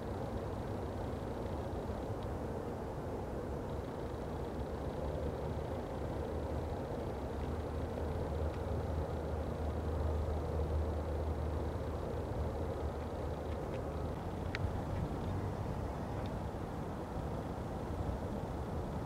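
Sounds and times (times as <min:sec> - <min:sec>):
distant road traffic rumble: 0:00.0 - 0:19.0.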